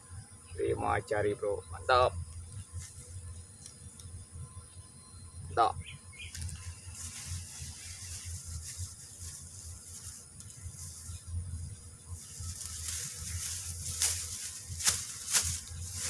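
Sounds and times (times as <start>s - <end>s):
outdoor hiss: 5.5s - 16.0s
short rustles: 12.2s - 16.0s.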